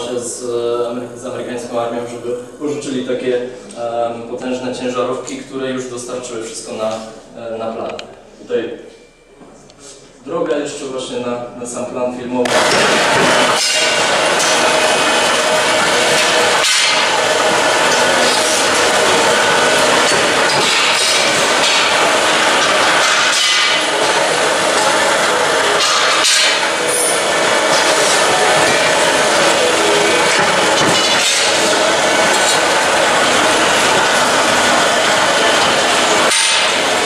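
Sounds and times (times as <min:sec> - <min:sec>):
metal workshop tool noise: 0:12.5 - 0:37.0.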